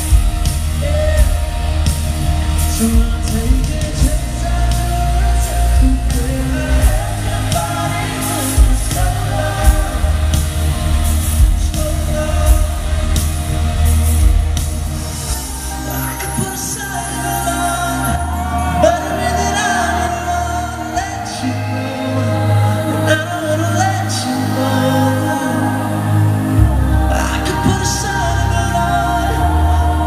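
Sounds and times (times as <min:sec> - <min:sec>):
person singing: 0:00.0 - 0:14.4, 0:15.3 - 0:30.0
live pop band playing: 0:00.0 - 0:30.0
drum beat: 0:05.8 - 0:15.4.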